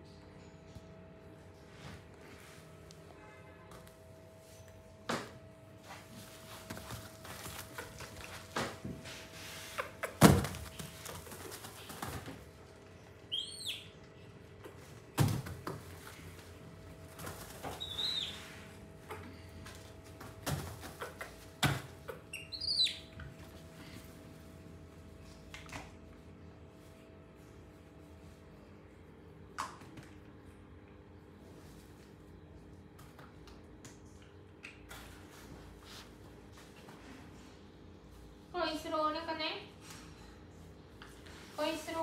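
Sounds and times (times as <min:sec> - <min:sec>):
high chirps: 0:13.3 - 0:13.9, 0:22.3 - 0:23.1.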